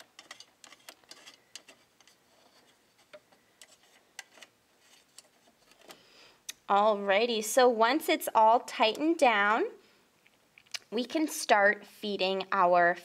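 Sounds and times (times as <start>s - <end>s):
small metal clicks and ticks: 0.0s - 2.2s.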